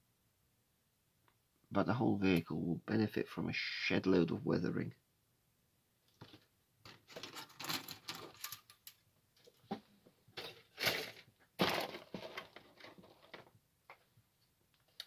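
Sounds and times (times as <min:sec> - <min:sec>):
plastic parts clicking and rattling: 0:06.1 - 0:09.8, 0:10.4 - 0:13.6.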